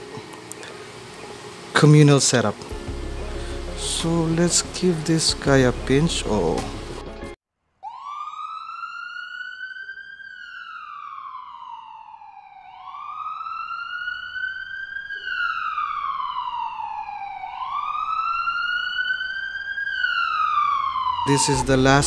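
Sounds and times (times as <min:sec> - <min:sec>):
siren wailing: 0:07.8 - 0:22.0.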